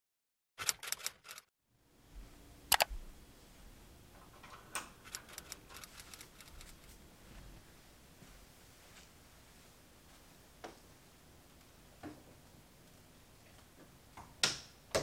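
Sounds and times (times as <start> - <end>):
sharp clicks: 0.6 - 1.4, 5.0 - 6.8
window blind slats clicking and rattling: 4.2 - 7.0.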